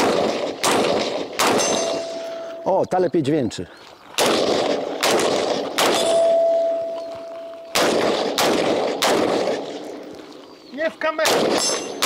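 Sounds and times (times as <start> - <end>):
rifle shots: 0.0 - 2.2, 4.2 - 7.0, 7.7 - 10.1, 11.2 - 12.0
steel target ringing: 1.5 - 2.7, 5.8 - 7.8, 11.6 - 12.0.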